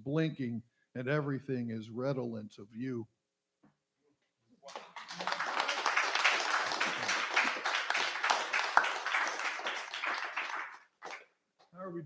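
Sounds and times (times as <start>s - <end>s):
audience clapping: 4.6s - 11.3s.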